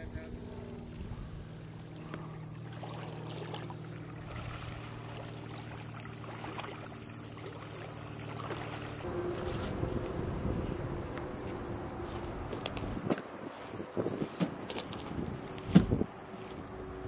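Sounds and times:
steady low hum: 0.0s - 17.0s
boots splashing through water: 2.0s - 9.7s, 11.5s - 16.0s.

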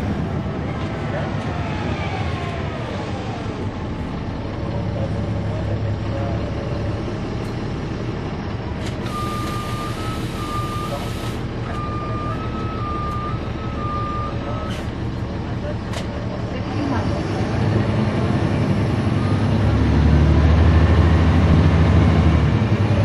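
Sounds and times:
bus diesel engine running: 0.0s - 23.0s
two-tone warning beeper: 9.1s - 14.9s.

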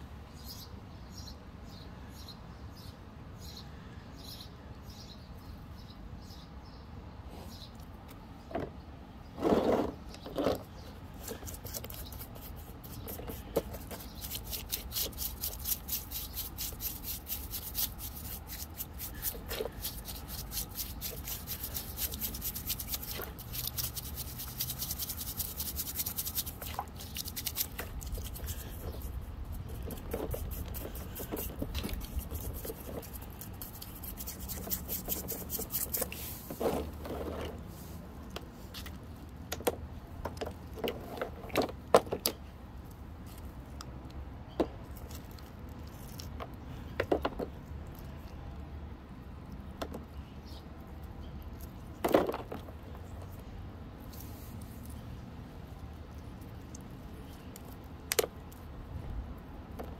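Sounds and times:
brush scrubbing stone: 11.1s - 37.0s.

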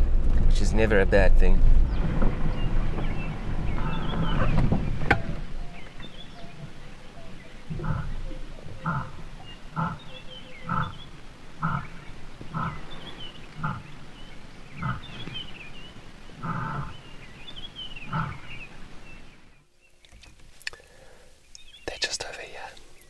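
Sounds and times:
lion roaring and grunting: 2.3s - 5.8s, 7.6s - 14.0s, 14.7s - 15.2s, 16.4s - 17.1s, 18.0s - 18.6s.

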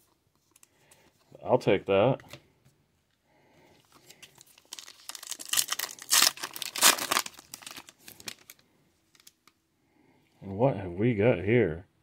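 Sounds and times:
foil wrapper crinkling: 3.9s - 9.5s
foil ripping: 4.6s - 8.6s.

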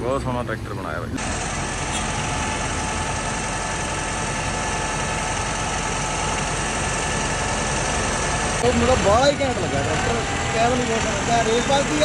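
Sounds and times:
tractor diesel engine idling: 1.1s - 12.0s.

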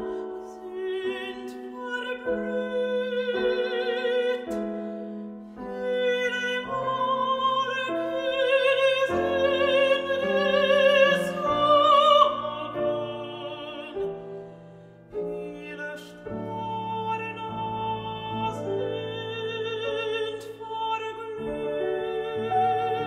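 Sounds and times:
piano accompaniment: 0.0s - 23.0s
two women singing duet: 5.7s - 14.2s, 15.3s - 23.0s.

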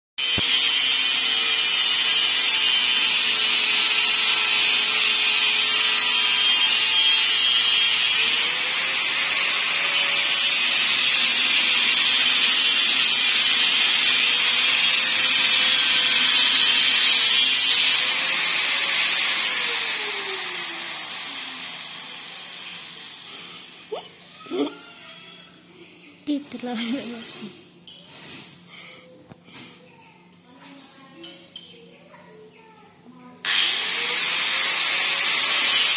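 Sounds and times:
grinder motor winding down: 0.2s - 23.9s, 33.5s - 35.9s
angle grinder grinding metal: 0.2s - 24.0s, 33.4s - 35.9s.

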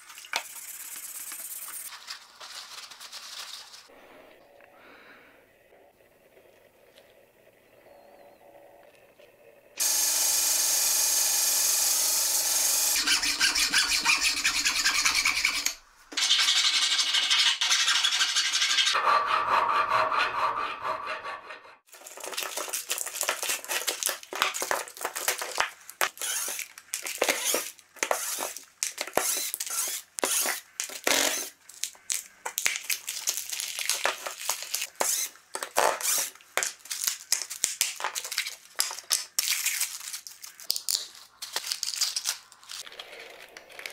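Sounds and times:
belt sander grinding metal rod: 12.7s - 15.8s.

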